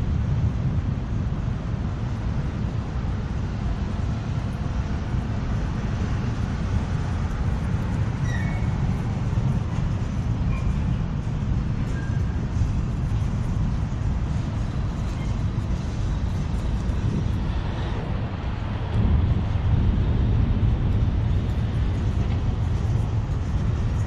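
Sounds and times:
train wheels rumbling on rails: 0.0s - 24.0s
high wheel squeaks: 8.1s - 11.0s, 11.8s - 12.7s, 15.0s - 15.9s.

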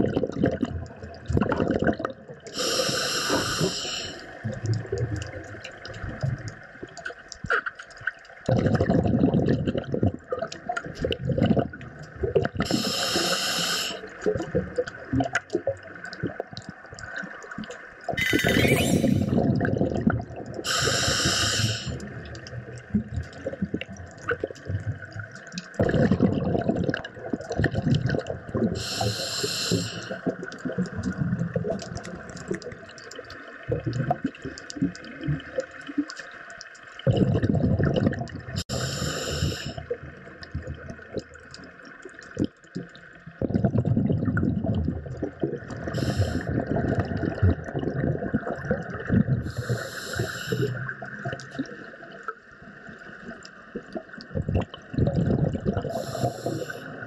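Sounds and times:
regulator inhalation hiss: 2.6s - 4.3s, 12.7s - 14.1s, 20.7s - 22.0s, 28.8s - 30.2s, 38.6s - 39.8s, 46.0s - 46.5s, 49.5s - 50.8s, 56.0s - 56.9s.

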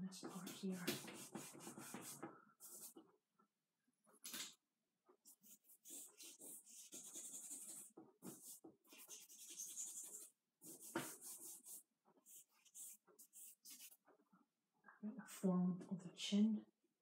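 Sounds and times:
charcoal strokes on paper: 0.1s - 3.0s, 5.2s - 14.0s.

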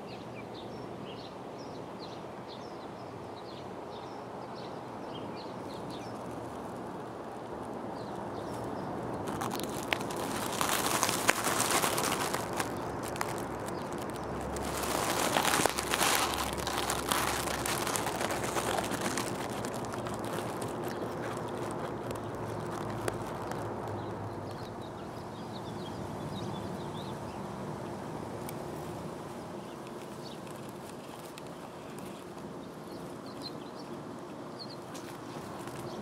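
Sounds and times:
rustling against microphone: 5.8s - 24.9s, 28.5s - 36.0s.

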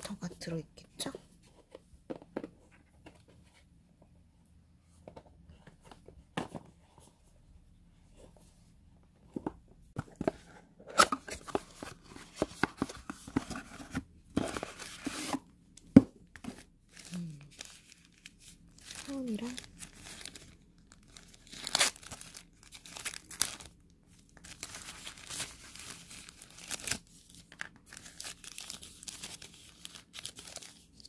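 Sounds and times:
packaging rustling: 16.9s - 31.0s
packaging tearing: 21.0s - 23.8s.

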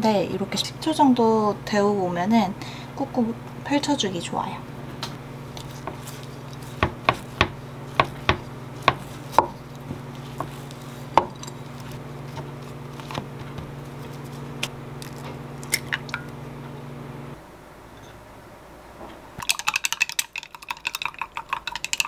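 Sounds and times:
steady low hum: 0.0s - 19.4s
egg clicking against glass cup: 19.4s - 22.0s.

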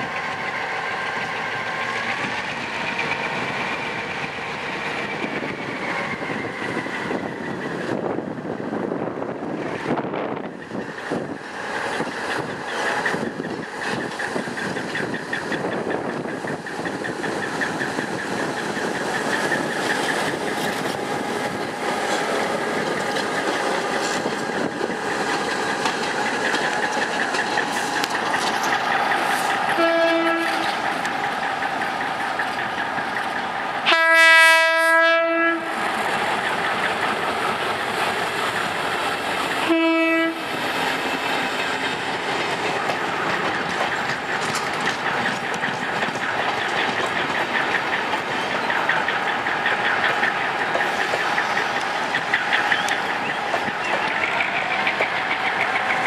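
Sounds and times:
diesel locomotive rolling on rails: 0.0s - 56.0s
locomotive horn blasts: 29.8s - 30.6s, 33.9s - 35.7s, 39.7s - 40.4s.

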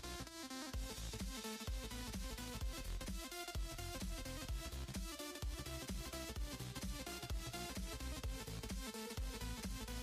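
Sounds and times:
electronic music with low thumps: 0.0s - 10.0s.

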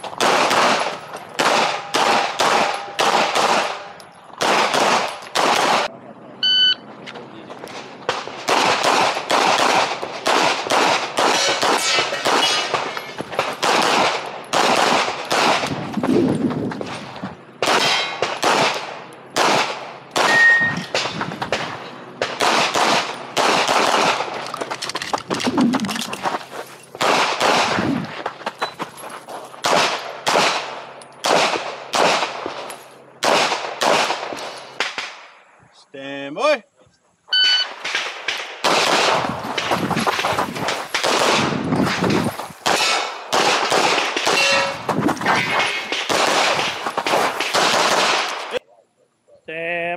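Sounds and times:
pistol shots: 0.1s - 5.9s, 8.0s - 15.8s, 17.6s - 24.4s, 27.0s - 28.0s, 29.6s - 35.2s, 37.6s - 39.7s, 40.6s - 48.6s
metallic ring: 20.3s - 20.9s, 44.3s - 44.9s.

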